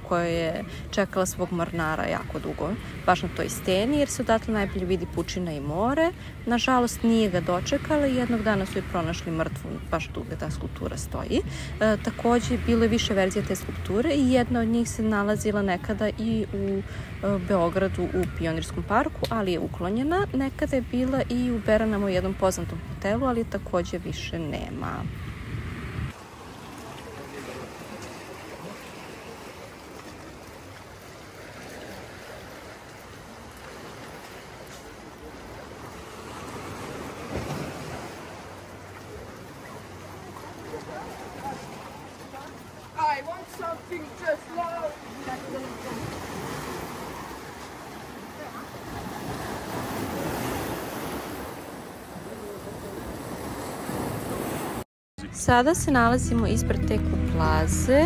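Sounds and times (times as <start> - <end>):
waves breaking over rocks: 24.6 - 54.8.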